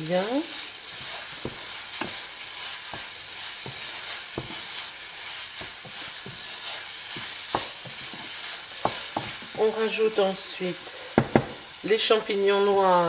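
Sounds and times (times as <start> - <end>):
meat sizzling in a pan: 0.0 - 13.0
spatula scraping a pan: 0.1 - 10.0.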